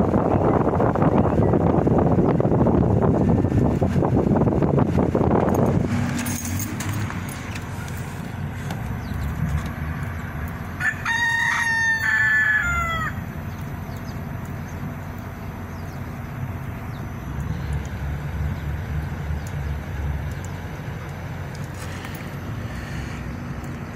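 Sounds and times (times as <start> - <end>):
air conditioner unit humming: 0.0 - 23.9
rooster crowing: 10.7 - 13.3.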